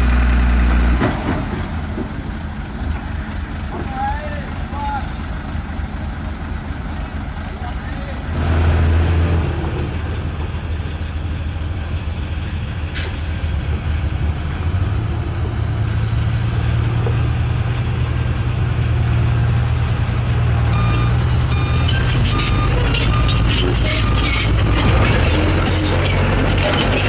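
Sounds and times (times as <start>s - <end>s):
diesel truck engine running: 0.0s - 27.0s
reversing alarm beeping: 20.6s - 25.5s.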